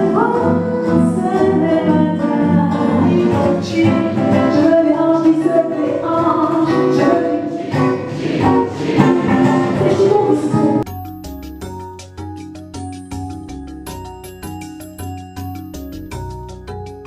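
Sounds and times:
nylon-string acoustic guitar: 0.0s - 10.9s
woman singing: 0.0s - 10.9s
mallet percussion notes: 9.0s - 17.0s.

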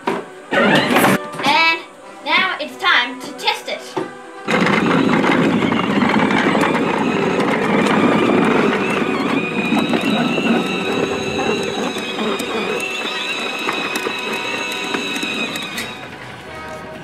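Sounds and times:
electric motor whine: 0.4s - 1.2s, 4.4s - 16.5s
toy tracks rattling: 4.4s - 16.4s.

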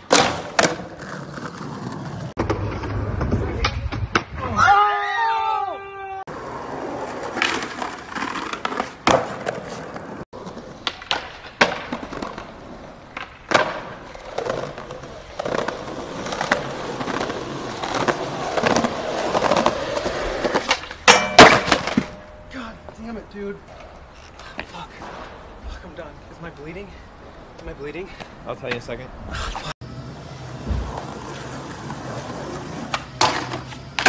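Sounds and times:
skateboard pops and landings: 0.0s - 4.6s, 7.2s - 22.3s, 30.6s - 34.0s
skateboard wheels rolling on concrete: 0.0s - 34.0s.

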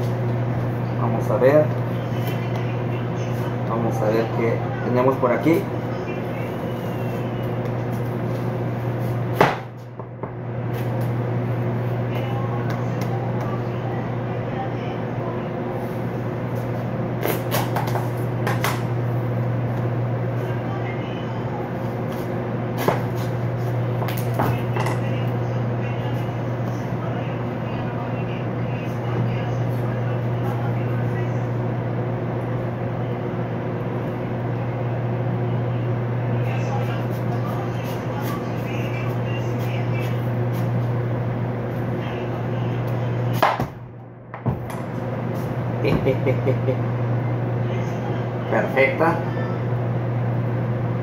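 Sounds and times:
steady low hum: 0.0s - 51.0s
knocks on cutting board: 9.4s - 9.7s.

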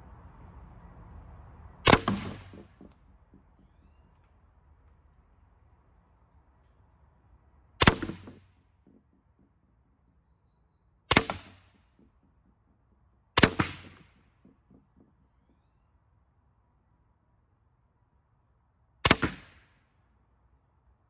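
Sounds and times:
paintball marker shots: 1.8s - 3.7s, 7.8s - 9.5s, 11.1s - 12.3s, 13.4s - 15.2s, 19.1s - 19.7s.

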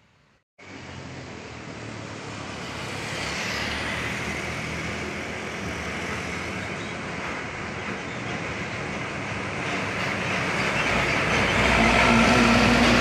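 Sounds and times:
tyre and road noise: 0.0s - 13.0s
truck diesel engine: 4.8s - 13.0s.

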